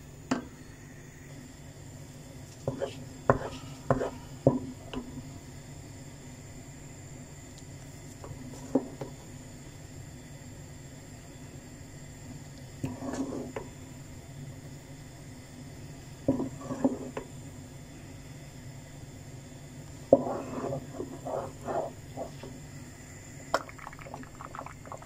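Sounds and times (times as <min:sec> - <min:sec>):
ladle scraping and knocking pot: 0:16.3 - 0:17.2, 0:20.1 - 0:22.4.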